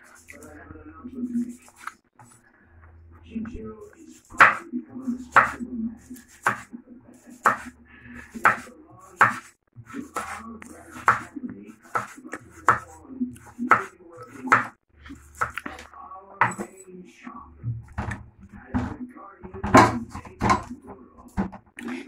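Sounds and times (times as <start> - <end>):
knife chopping on wooden board: 4.4 - 4.6, 5.3 - 5.6, 6.2 - 6.7, 7.4 - 7.7, 8.3 - 15.6, 19.6 - 20.7.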